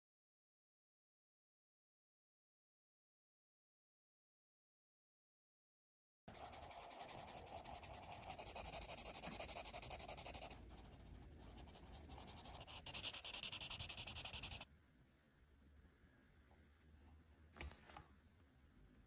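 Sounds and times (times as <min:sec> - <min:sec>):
marker scratching on paper: 0:06.3 - 0:14.7.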